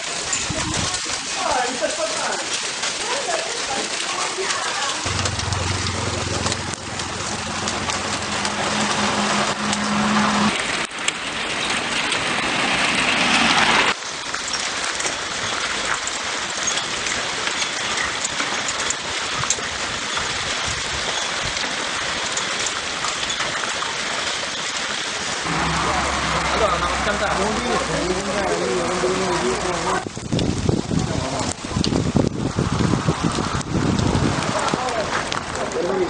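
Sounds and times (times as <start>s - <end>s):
hail clattering on pavement and cars: 0.0s - 36.0s
low steady hum: 5.1s - 9.1s.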